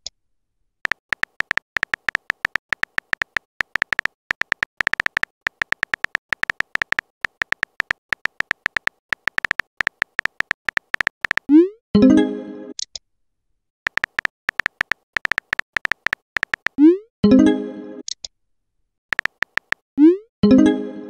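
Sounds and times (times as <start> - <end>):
keyboard tapping beeps: 0.9 - 11.7, 13.9 - 17.0, 19.1 - 20.2.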